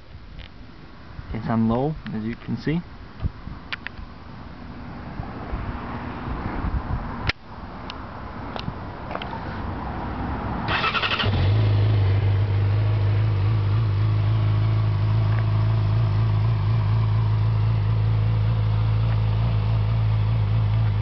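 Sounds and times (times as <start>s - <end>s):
motorcycle engine starting and idling: 10.7s - 21.0s.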